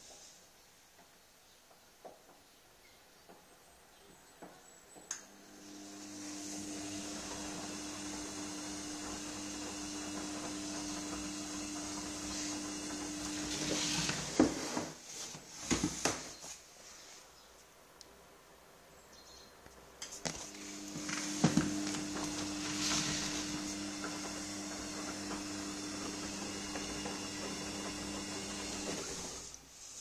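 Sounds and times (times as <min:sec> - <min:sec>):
washing machine drum humming: 0:05.7 - 0:14.5, 0:20.5 - 0:29.5.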